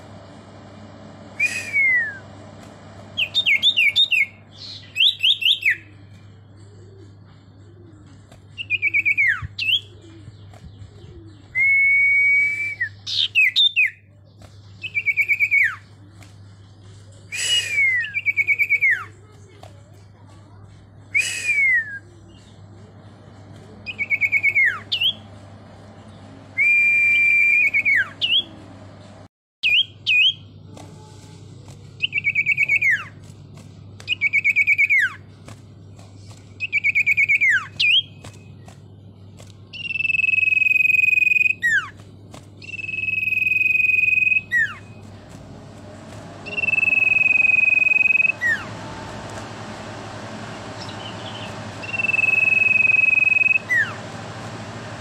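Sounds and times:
bird singing whistled phrases: 0:01.4 - 0:02.3, 0:03.2 - 0:05.9, 0:08.6 - 0:10.0, 0:11.3 - 0:14.1, 0:14.8 - 0:15.8, 0:17.3 - 0:19.2, 0:21.1 - 0:22.1, 0:23.8 - 0:25.2, 0:26.6 - 0:28.5, 0:29.6 - 0:30.5, 0:32.0 - 0:33.2, 0:34.1 - 0:35.2, 0:36.6 - 0:38.7, 0:39.7 - 0:42.0, 0:42.6 - 0:45.0, 0:46.4 - 0:48.8, 0:50.6 - 0:54.0.

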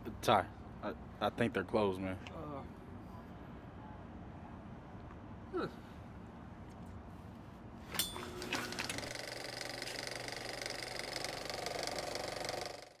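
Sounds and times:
film projector running: 0:08.2 - 0:13.0.

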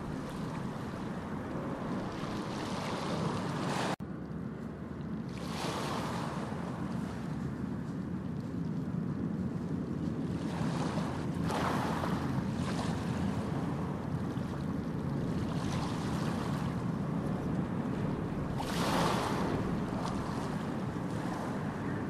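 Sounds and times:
water rushing: 0:00.0 - 0:04.0, 0:13.0 - 0:22.0
wind: 0:00.0 - 0:22.0.

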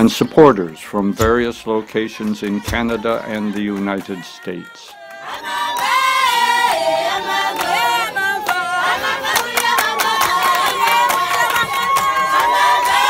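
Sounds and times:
congregation singing: 0:00.0 - 0:13.0
sharp drum beats: 0:01.2 - 0:04.2.

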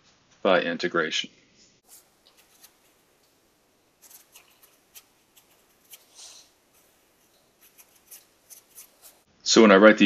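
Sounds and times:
marker scratching on paper: 0:01.8 - 0:09.3.

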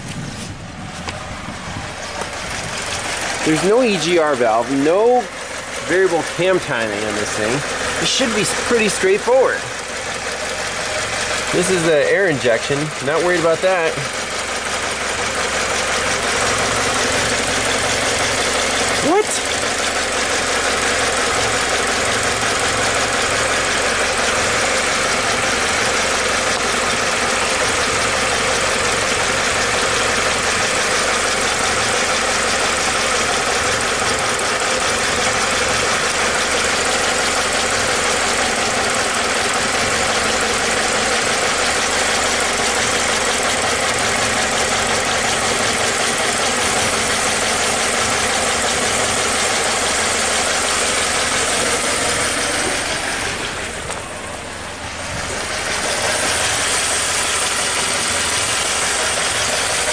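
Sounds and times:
car engine idling rough: 0:00.0 - 0:59.9.

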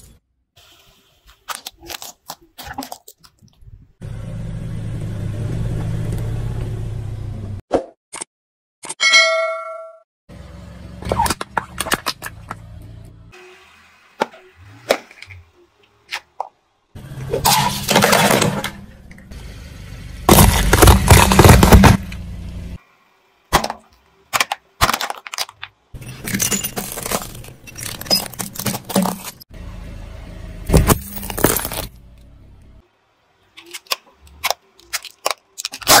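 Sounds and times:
plastic toys cracking and crunching: 0:01.3 - 0:03.7, 0:20.3 - 0:22.0, 0:23.5 - 0:29.4, 0:33.5 - 0:36.0
car rolling rumble: 0:03.6 - 0:07.6, 0:16.7 - 0:22.8.

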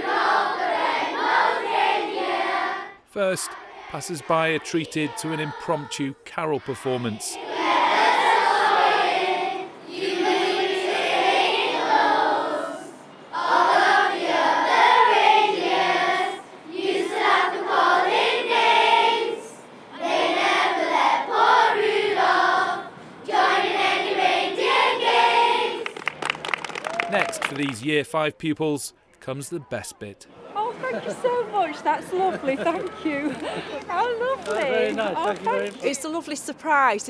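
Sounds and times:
children's choir singing: 0:00.0 - 0:26.0.

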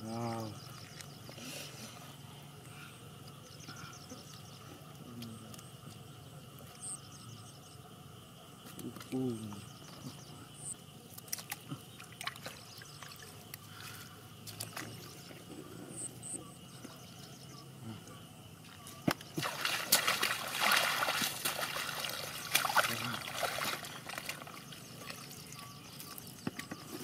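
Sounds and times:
quiet water trickling: 0:00.0 - 0:27.0
muddy water sloshing and splashing: 0:11.0 - 0:15.5, 0:18.6 - 0:27.0.

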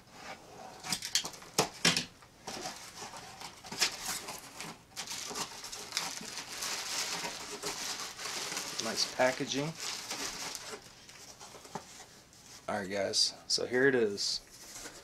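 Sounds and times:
bubble wrap rustling and crinkling: 0:02.5 - 0:12.7.

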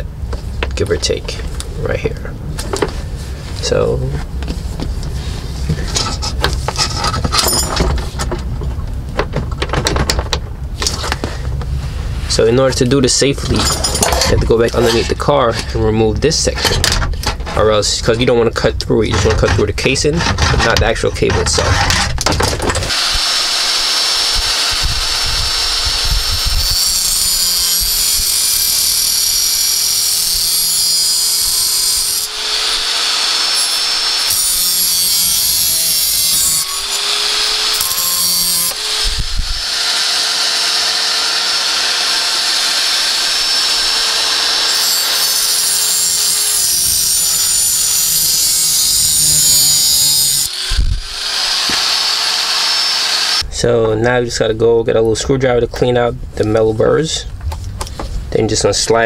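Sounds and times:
disc grinding through metal: 0:22.8 - 0:53.4
angle grinder motor whine: 0:22.8 - 0:53.5.

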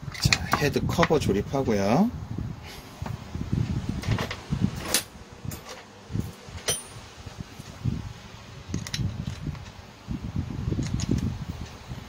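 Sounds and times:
metal parts clinking: 0:04.0 - 0:07.1, 0:08.7 - 0:09.7.

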